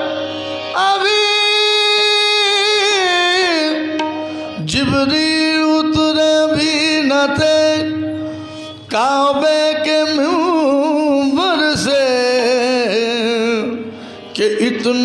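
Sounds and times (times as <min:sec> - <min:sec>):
harmonium drone: 0:00.0 - 0:15.0
tabla strokes: 0:03.9 - 0:04.6.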